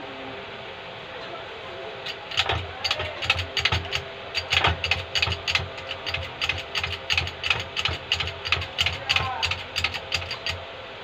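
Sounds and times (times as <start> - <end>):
hand pump clicking and clanking: 2.0 - 10.6.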